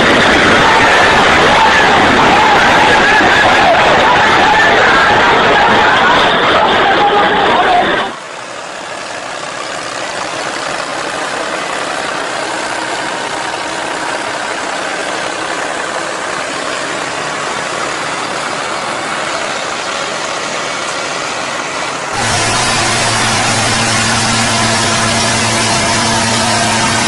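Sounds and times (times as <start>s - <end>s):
tractor engine under load: 0.0s - 27.0s.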